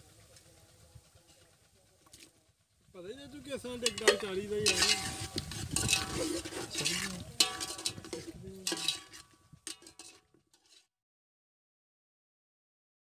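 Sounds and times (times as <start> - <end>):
metal ladle stirring and scraping: 1.3 - 2.4, 3.5 - 10.9
metal clinking on pot: 3.8 - 10.9.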